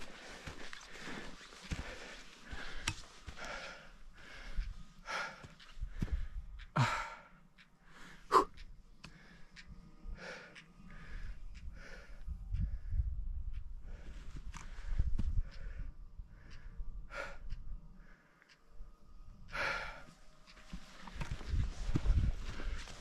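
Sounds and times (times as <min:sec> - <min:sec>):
person breathing hard: 0:00.0 - 0:13.2, 0:13.8 - 0:18.7, 0:19.5 - 0:23.0.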